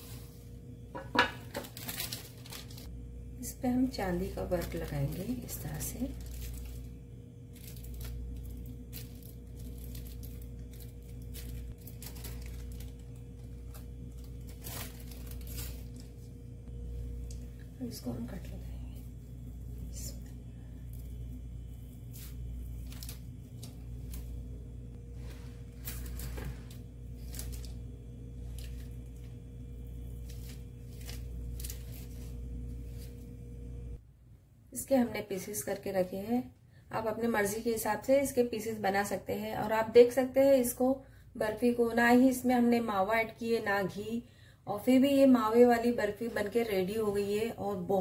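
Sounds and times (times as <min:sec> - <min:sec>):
steady low hum: 0:00.0 - 0:48.0
paper rustling and crinkling: 0:01.4 - 0:02.9, 0:04.5 - 0:06.9, 0:07.5 - 0:16.4, 0:22.0 - 0:24.4, 0:25.1 - 0:29.4, 0:30.0 - 0:33.3.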